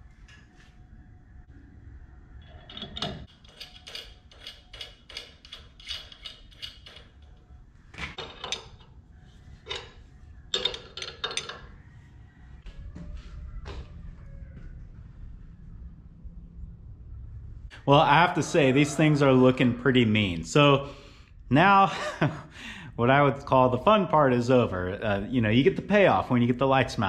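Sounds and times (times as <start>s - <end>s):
wrench clicking: 3.0s - 7.2s
metal knocks and clanks: 8.0s - 8.9s, 9.6s - 11.7s.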